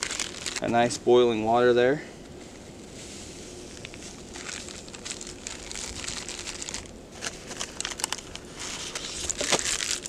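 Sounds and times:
plastic bag crinkling: 0.0s - 0.8s, 3.7s - 10.0s
steady hiss: 0.0s - 7.6s.

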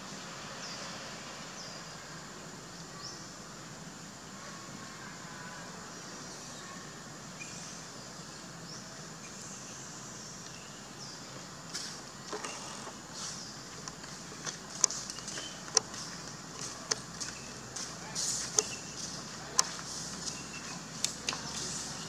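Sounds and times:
steady forest hiss: 0.0s - 22.0s
sharp clicks and snaps: 13.8s - 17.4s, 18.3s - 18.8s, 19.5s - 20.4s
faint high chirps: 14.9s - 22.0s.

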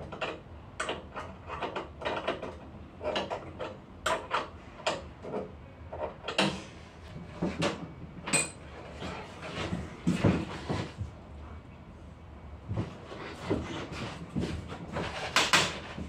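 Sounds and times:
clicks and knocks of machine parts: 0.0s - 6.6s.

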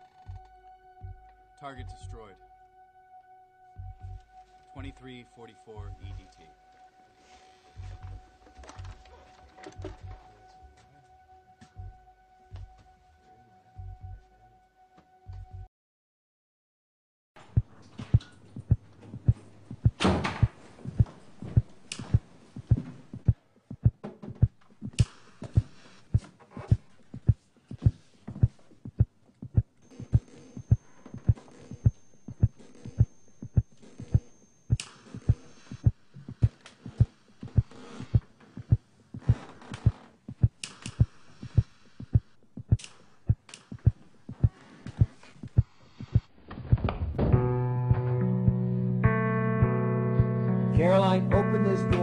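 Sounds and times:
low throbbing pulse: 0.0s - 7.0s, 7.6s - 9.1s, 11.7s - 12.8s, 13.8s - 14.5s, 28.4s - 38.8s
heartbeat-like low thumps: 0.3s - 2.2s, 3.8s - 4.2s, 7.8s - 9.0s, 11.8s - 12.8s, 17.4s - 50.4s.

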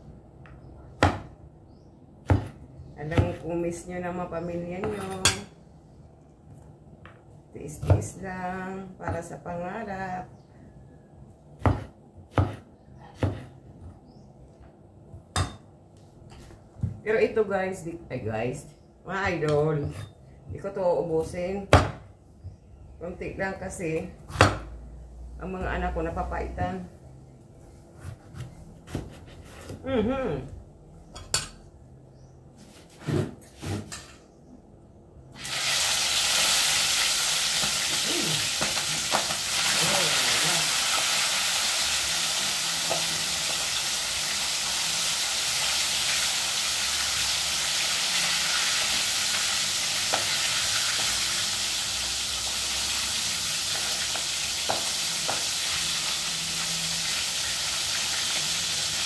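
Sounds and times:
knife chopping on wooden board: 1.0s - 1.3s, 2.2s - 3.4s, 11.6s - 13.5s, 24.3s - 24.7s, 28.0s - 29.8s
food frying in hot oil: 35.4s - 59.0s.

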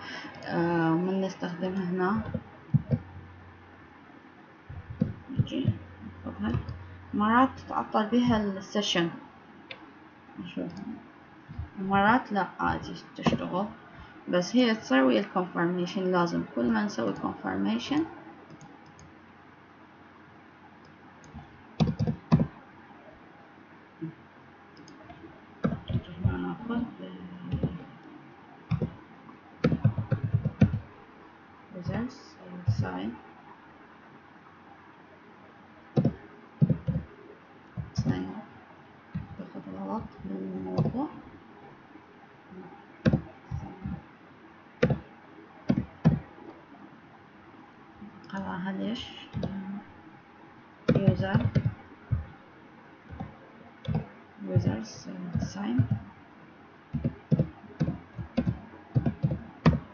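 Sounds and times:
low steady hiss: 0.0s - 59.9s
keyboard keystrokes: 4.7s - 5.8s, 21.2s - 22.6s, 24.8s - 26.4s, 27.5s - 27.8s, 28.7s - 29.0s, 29.6s - 30.8s, 36.0s - 37.1s, 44.8s - 45.1s, 45.7s - 46.3s, 50.9s - 52.3s, 53.1s - 56.0s, 57.0s - 59.9s.

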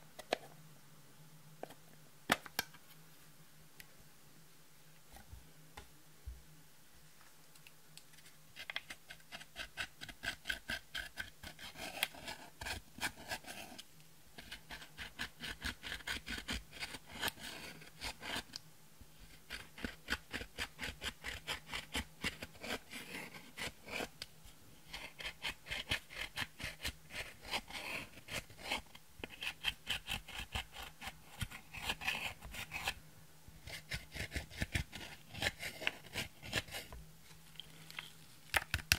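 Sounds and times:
pen scratching eyeshadow powder: 8.6s - 13.8s, 14.4s - 18.6s, 19.2s - 24.2s, 24.8s - 33.0s, 33.6s - 36.9s.

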